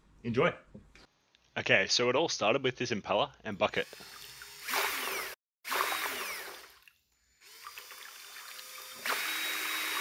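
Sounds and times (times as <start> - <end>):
drill spinning impeller in water: 3.8 - 10.0.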